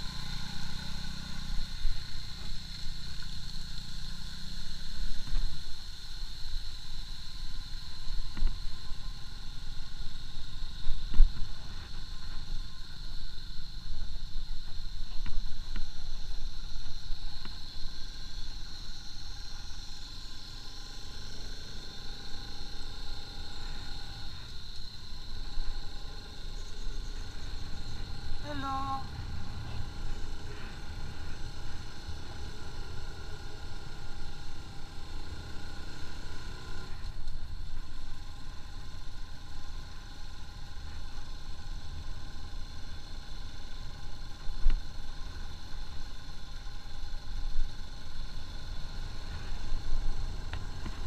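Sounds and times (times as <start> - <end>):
motorcycle engine: 0.0 - 5.8, 19.6 - 51.0
constant high whine: 0.0 - 51.0
wind and road noise: 0.0 - 51.0.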